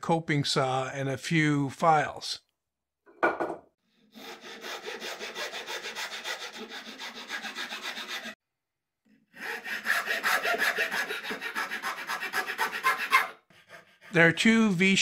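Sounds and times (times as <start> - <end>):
file rasping on wood: 4.0 - 8.4, 9.3 - 14.3.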